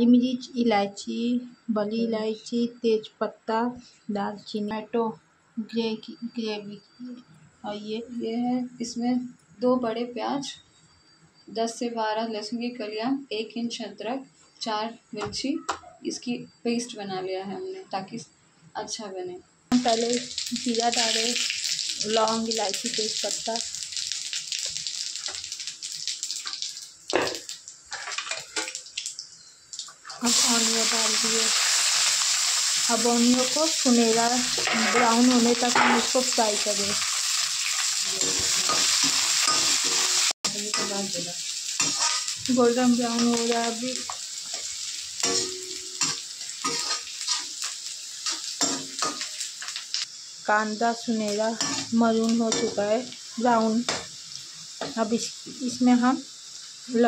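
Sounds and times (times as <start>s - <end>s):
spices sizzling in hot oil: 19.7s - 57.0s.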